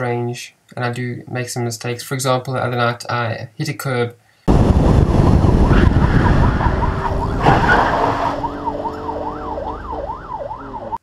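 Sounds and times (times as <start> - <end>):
car rumbling on road: 4.5 - 11.0
emergency vehicle siren: 4.5 - 11.0.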